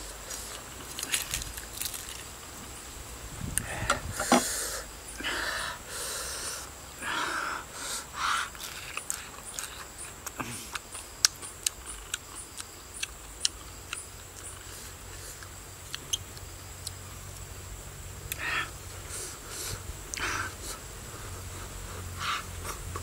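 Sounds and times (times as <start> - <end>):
man sniffing and breathing: 3.6 - 8.8, 18.3 - 23.0
chewing: 8.5 - 17.0.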